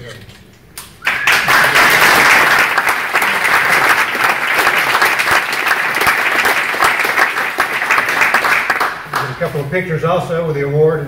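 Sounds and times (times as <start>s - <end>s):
audience applauding: 1.0s - 9.5s.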